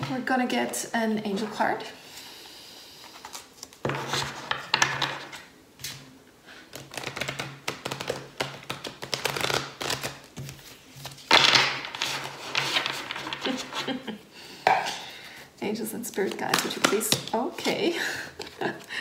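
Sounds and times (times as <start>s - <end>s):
cards being shuffled: 6.7s - 13.9s.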